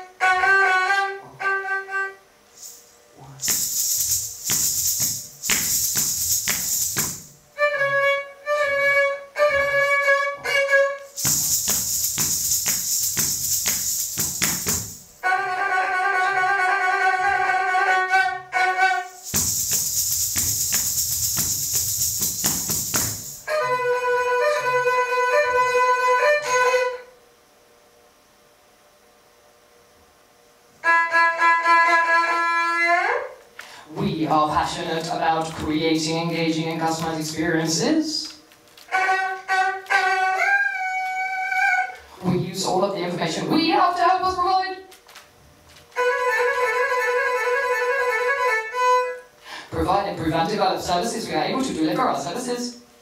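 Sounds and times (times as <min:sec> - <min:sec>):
bowed fiddle notes: 0:00.0 - 0:02.2, 0:07.6 - 0:11.1, 0:15.2 - 0:19.2, 0:23.5 - 0:27.1, 0:38.9 - 0:42.0, 0:45.9 - 0:49.3
harsh hissing noise: 0:02.5 - 0:07.5, 0:11.0 - 0:15.3, 0:19.0 - 0:23.7.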